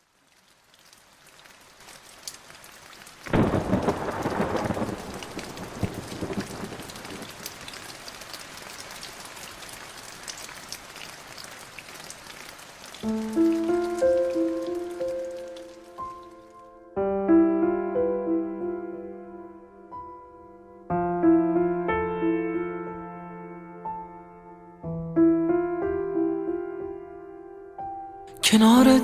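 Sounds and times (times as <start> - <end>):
steady rain: 0.0 - 16.8
thunder clap and rumble: 3.3 - 7.7
piano notes: 13.0 - 29.0.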